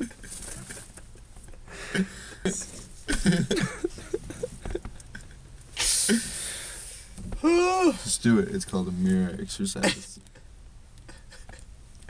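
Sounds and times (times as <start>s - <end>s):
man stifling laughter: 0.0s - 5.4s, 9.8s - 11.7s.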